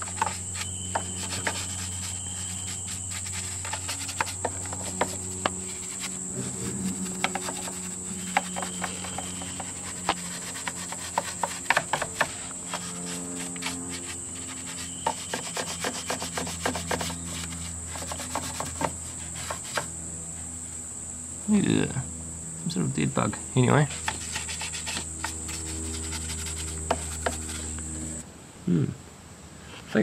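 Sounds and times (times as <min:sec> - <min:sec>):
brush scrubbing engine parts: 0:00.0 - 0:19.9, 0:23.8 - 0:28.2
high-pitched whine: 0:00.0 - 0:28.2.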